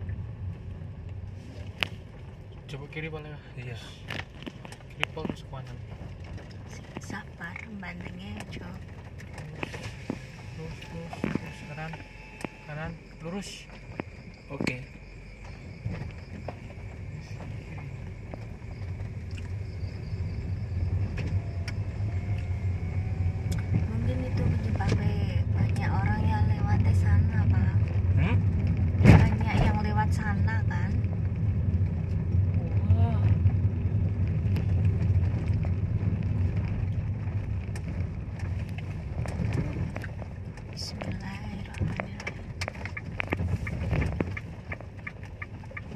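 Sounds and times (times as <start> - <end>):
engine and tyre rumble: 0.0 - 45.9
car knocks and rattles: 27.8 - 30.4, 33.4 - 45.9.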